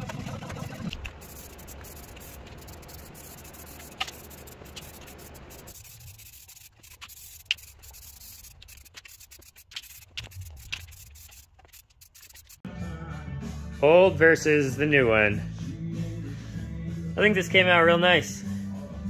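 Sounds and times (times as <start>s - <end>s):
aerosol spray can hissing: 0.9s - 12.7s.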